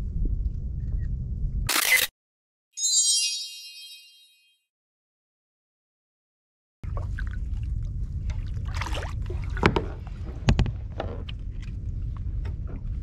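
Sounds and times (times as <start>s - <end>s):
wind on microphone: 0.0s - 1.7s
water moving around kayak: 6.9s - 13.0s.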